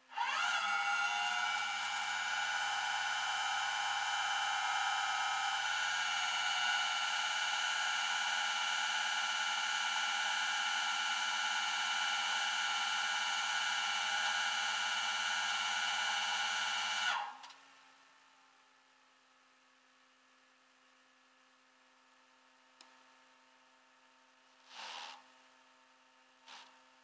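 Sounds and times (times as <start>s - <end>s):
hydraulic winch whining: 0.1s - 6.5s.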